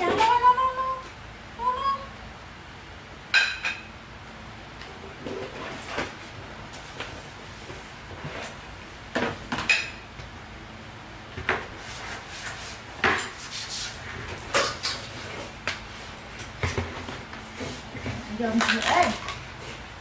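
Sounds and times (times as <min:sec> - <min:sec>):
kitchenware clattering: 0:18.0 - 0:19.4.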